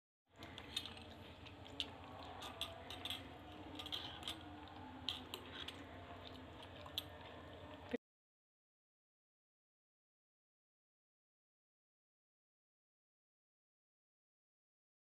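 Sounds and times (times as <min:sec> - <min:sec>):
spoon clinking in glass bowl: 0:01.8 - 0:04.5.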